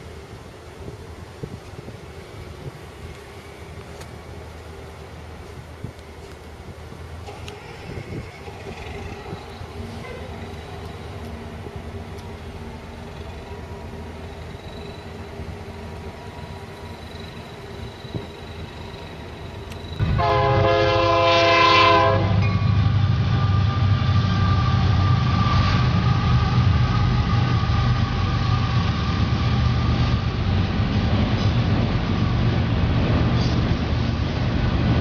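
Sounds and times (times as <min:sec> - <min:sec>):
train rumbling past: 0:00.0 - 0:35.0
train horn blast: 0:09.9 - 0:10.4, 0:20.0 - 0:28.8.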